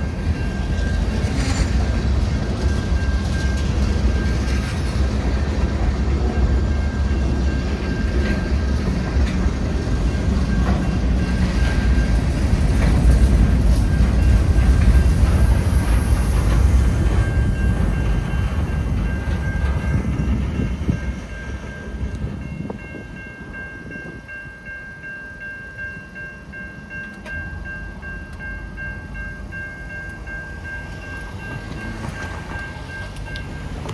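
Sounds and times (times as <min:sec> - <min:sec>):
crossing warning bell ringing: 0:00.0 - 0:33.9
train wheels rumbling: 0:00.0 - 0:33.9.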